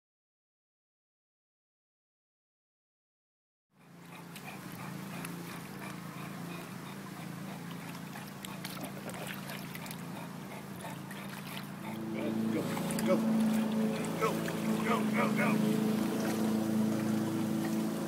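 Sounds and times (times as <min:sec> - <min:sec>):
dog breathing noisily: 0:03.8 - 0:17.8
steady low hum: 0:03.8 - 0:18.0
water splashes and drips: 0:07.5 - 0:10.2, 0:11.1 - 0:12.0, 0:12.6 - 0:18.0.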